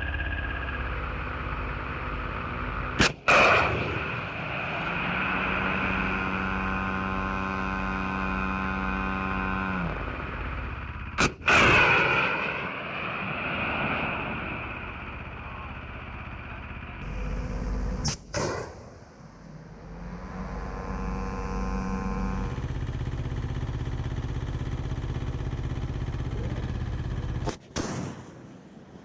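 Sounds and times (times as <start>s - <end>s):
steady pitched hum: 0.0s - 27.6s
rocket motor rushing blast: 0.0s - 28.4s
missile launch crack: 3.0s - 4.8s, 11.2s - 14.9s.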